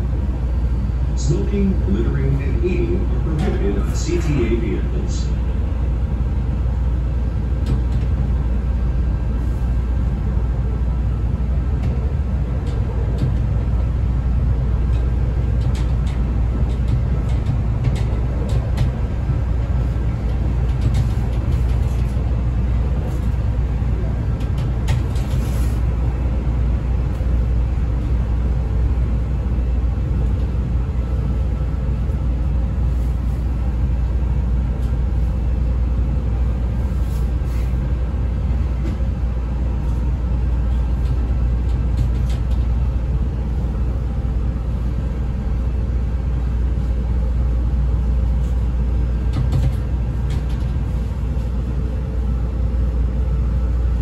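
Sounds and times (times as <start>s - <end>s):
train rumbling on rails: 0.0s - 54.0s.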